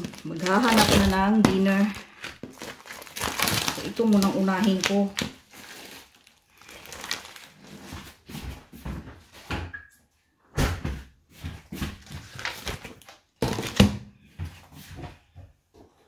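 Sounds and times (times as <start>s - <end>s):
plastic trays knocking and clattering: 13.4s - 14.1s.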